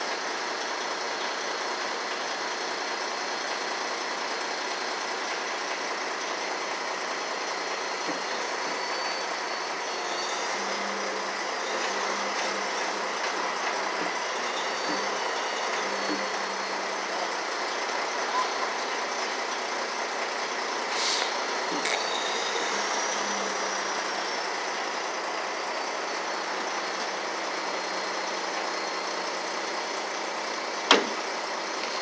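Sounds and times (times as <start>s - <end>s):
truck engine idling: 0.0s - 32.0s.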